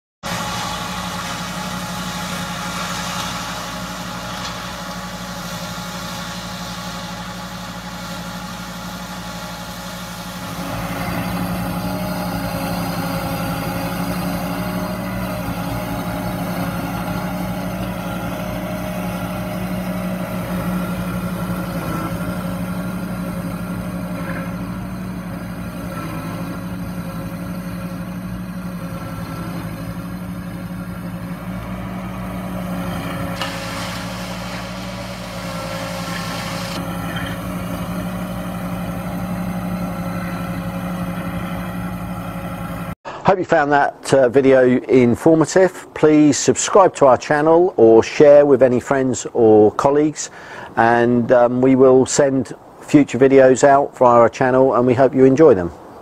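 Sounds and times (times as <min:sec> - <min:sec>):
flail mower cutting grass: 0:00.2 - 0:43.0
tractor engine running: 0:00.2 - 0:43.6.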